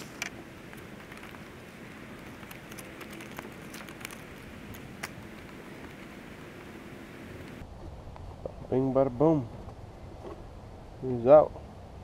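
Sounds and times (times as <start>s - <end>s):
plastic clicks and crinkles: 0.0s - 6.2s.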